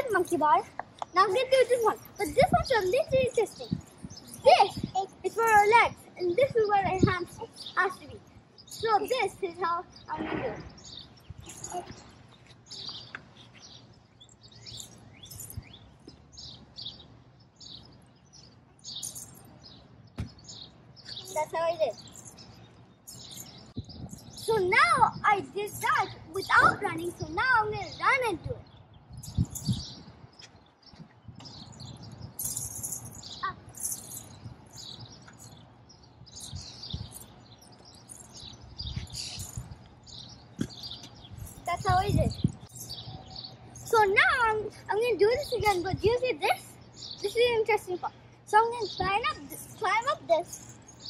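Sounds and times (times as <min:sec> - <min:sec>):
small birds chirping: 0:00.0 - 0:51.0.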